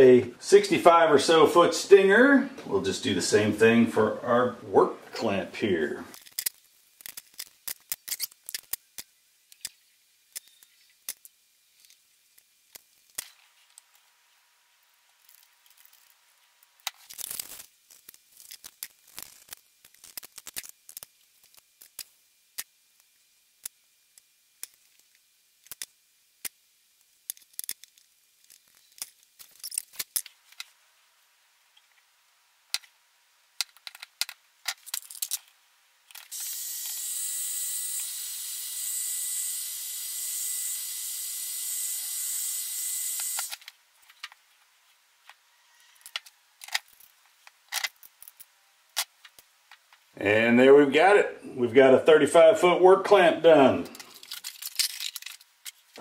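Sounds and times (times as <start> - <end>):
steady hiss: 0.0 - 40.6.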